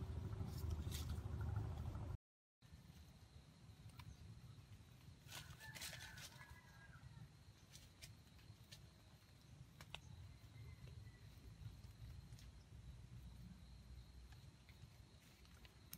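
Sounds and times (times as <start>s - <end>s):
faint high insect tone: 2.6s - 15.9s
rustling dry leaf litter: 4.8s - 6.9s.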